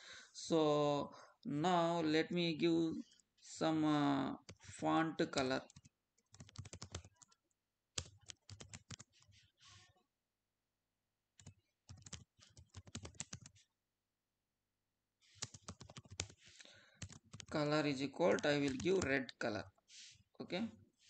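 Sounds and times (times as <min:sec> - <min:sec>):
computer keyboard typing: 0:04.4 - 0:04.8, 0:05.6 - 0:07.4, 0:08.0 - 0:09.4, 0:11.4 - 0:13.6, 0:15.3 - 0:19.4.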